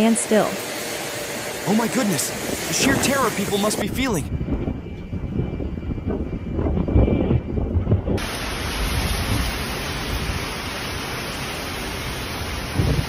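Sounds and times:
heavy rain hiss: 0.0 - 4.3, 8.2 - 13.0
wind buffeting microphone: 1.2 - 10.6, 12.3 - 13.0.

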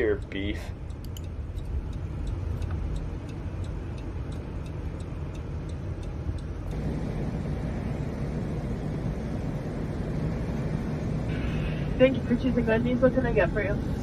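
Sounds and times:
turn signal ticking: 0.0 - 7.0
engine and tyre rumble: 0.0 - 14.0.

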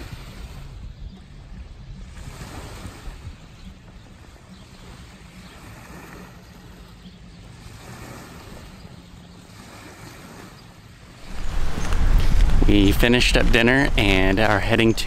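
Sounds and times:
wind: 0.0 - 15.0
waves lapping on gravel: 4.9 - 15.0.

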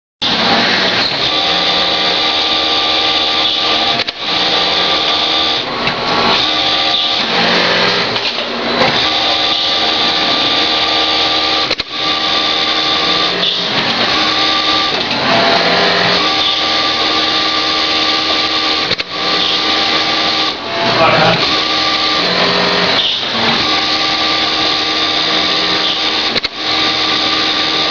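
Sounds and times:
sewing machine whining: 0.2 - 27.9
sharp click: 11.7 - 11.9.

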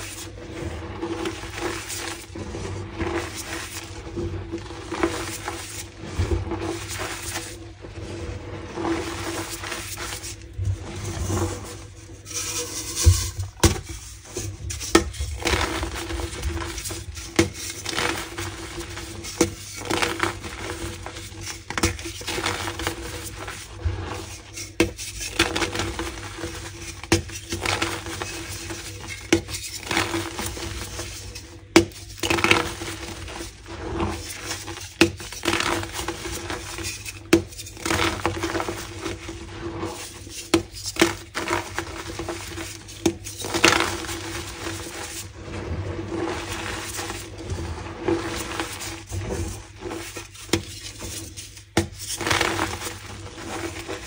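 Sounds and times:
chalk blocks crunching: 0.0 - 54.0.

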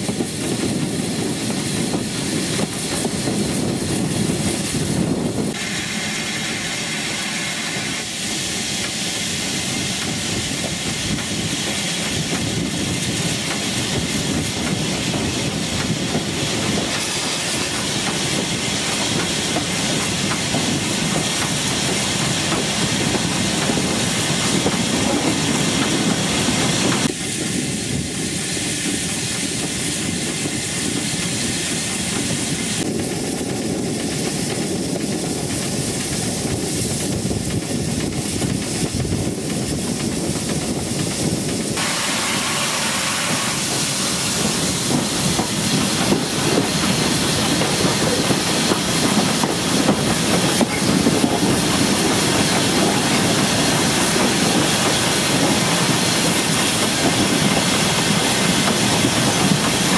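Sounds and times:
steam hissing: 0.0 - 59.9
wheels clicking over rail joints: 29.0 - 42.0, 43.7 - 59.9.

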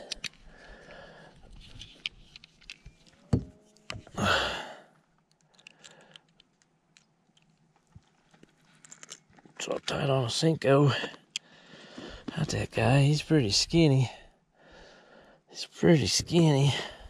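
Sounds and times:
plastic clicks and rattles: 1.5 - 4.1, 5.2 - 7.7.

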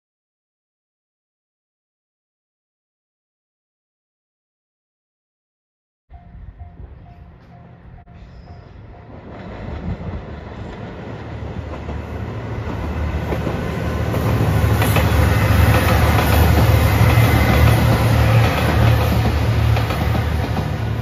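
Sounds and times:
diesel train engine rumble: 6.1 - 21.0.

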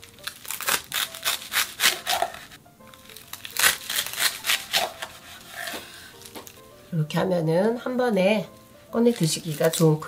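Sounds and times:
knife crunching through crisp sheets: 0.0 - 6.6, 9.0 - 10.0
soft background music: 0.0 - 10.0.

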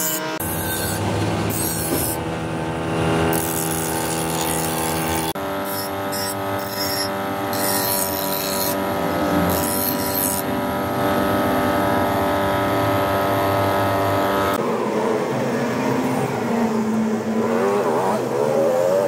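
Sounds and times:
bench grinder motor hum: 0.0 - 14.6
blade grinding on wheel: 0.0 - 14.6.

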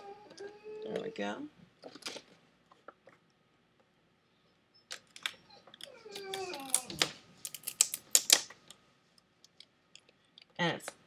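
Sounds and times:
adhesive film crackling as peeled: 6.1 - 8.5.

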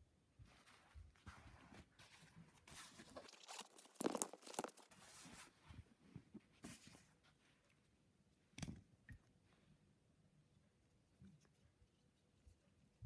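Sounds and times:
fabric case rustling: 2.7 - 5.5.

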